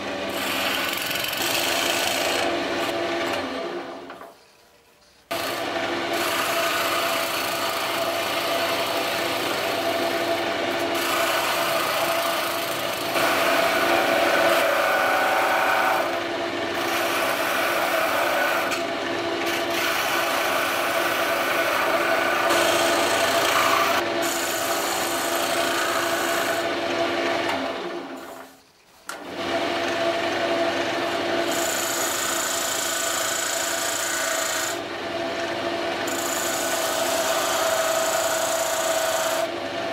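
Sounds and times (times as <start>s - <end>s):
chisel scraping spinning wood: 5.4s - 27.6s
lathe motor hum: 5.4s - 28.3s.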